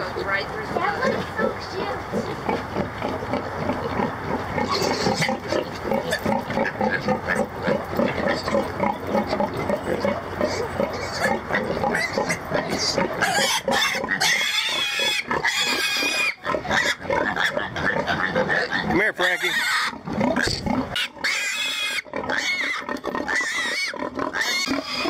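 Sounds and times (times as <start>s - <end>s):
piglets grunting: 0.0s - 25.0s
piglet squealing shrilly: 13.2s - 25.0s.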